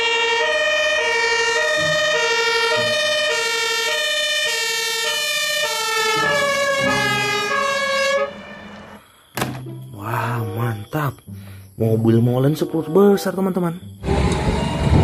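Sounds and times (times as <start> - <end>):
fire engine two-tone siren: 0.0 - 9.0.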